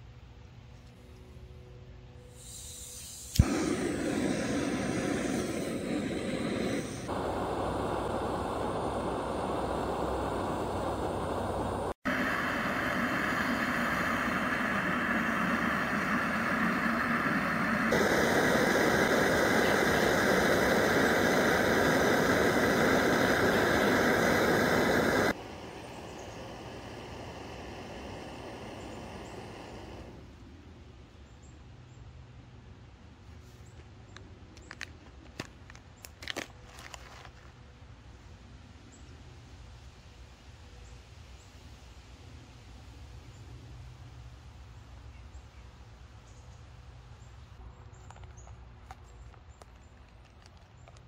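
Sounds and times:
gas stove burning hiss: 2.2s - 30.4s
gas stove lighting with a pop: 3.0s - 11.8s.

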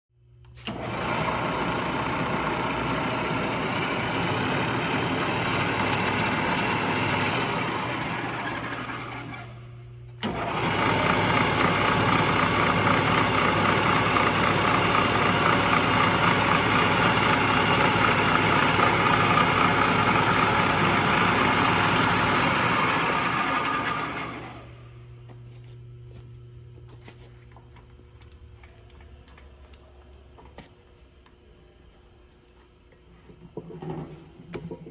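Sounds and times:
drill press motor running: 0.5s - 25.4s.

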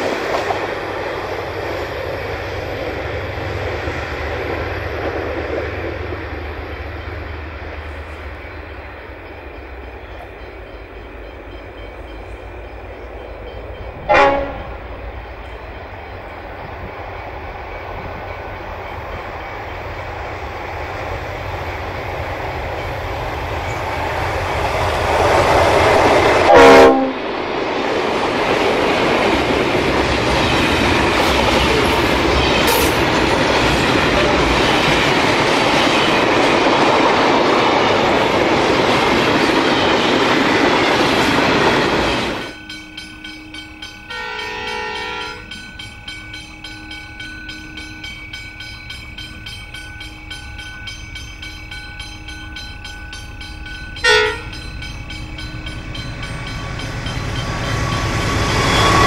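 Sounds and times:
train horn blast: 14.0s - 15.0s, 26.4s - 27.2s, 44.1s - 45.4s, 54.0s - 54.6s.

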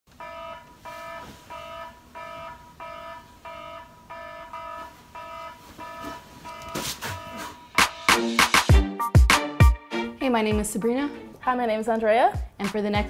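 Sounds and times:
alarm beeping: 0.1s - 8.2s.

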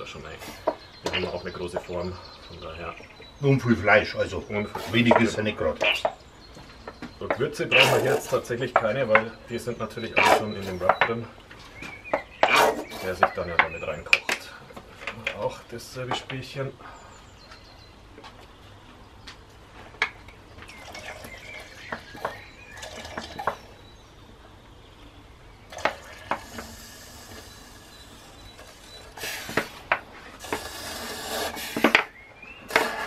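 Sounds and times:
liquid sloshing in bottle: 20.7s - 23.7s
glass bottles clinking: 20.7s - 23.8s, 25.7s - 29.6s.

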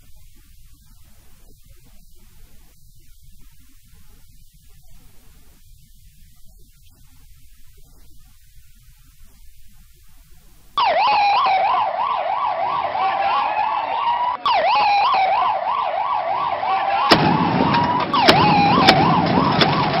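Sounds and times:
added noise: 10.8s - 20.0s
emergency vehicle siren: 10.8s - 20.0s
sharp clicks: 17.1s - 20.0s.

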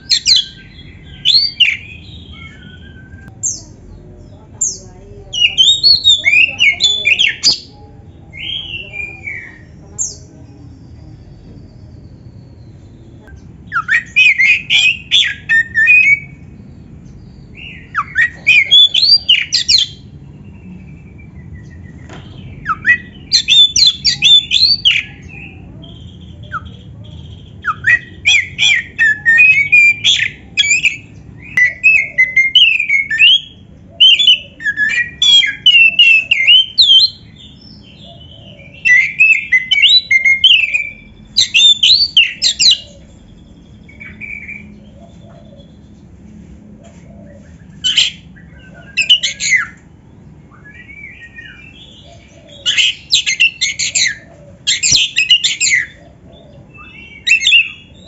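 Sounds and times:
bird singing whistled phrases: 0.0s - 3.7s, 5.4s - 7.7s, 13.7s - 16.4s, 17.4s - 20.0s, 22.4s - 45.8s, 47.7s - 49.8s, 50.5s - 56.0s, 56.7s - 58.0s.

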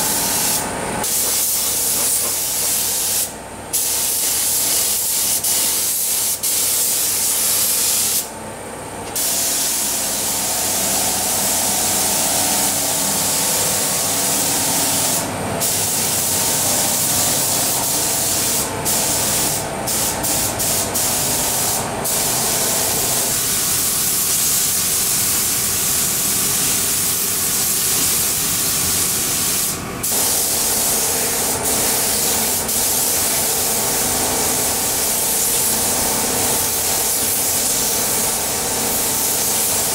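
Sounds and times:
paint spray gun hissing: 0.0s - 8.3s, 9.1s - 39.9s.

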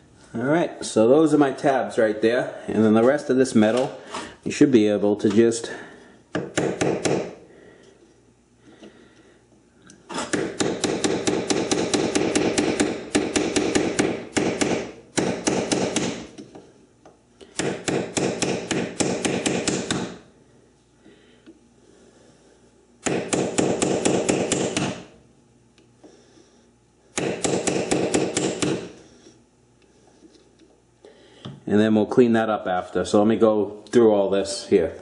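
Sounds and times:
hammer striking chisel on metal: 6.3s - 7.4s, 10.2s - 16.4s, 17.6s - 20.1s, 23.0s - 25.0s, 27.2s - 28.9s.

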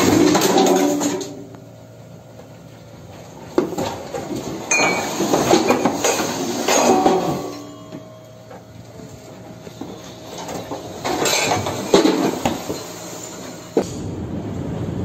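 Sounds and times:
loose objects clattering: 3.5s - 8.7s, 9.8s - 13.0s.

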